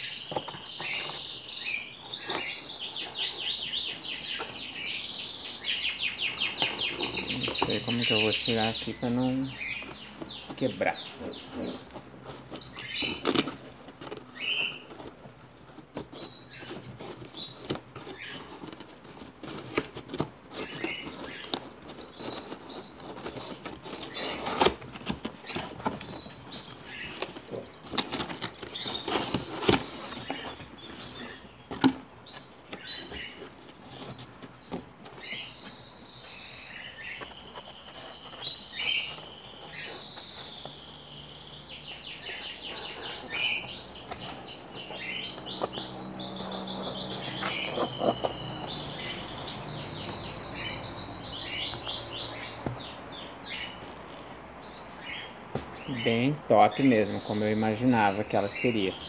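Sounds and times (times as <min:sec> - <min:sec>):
bird warbling song: 0:00.0 - 0:13.6, 0:35.1 - 0:53.9
small birds chirping: 0:00.0 - 0:59.0
cardboard box rustling and knocking: 0:09.6 - 0:40.9, 0:42.2 - 0:54.3.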